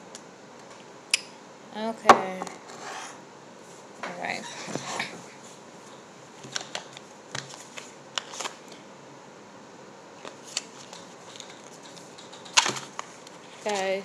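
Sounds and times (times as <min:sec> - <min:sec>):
cards being shuffled: 0:06.4 - 0:08.8, 0:10.2 - 0:14.0.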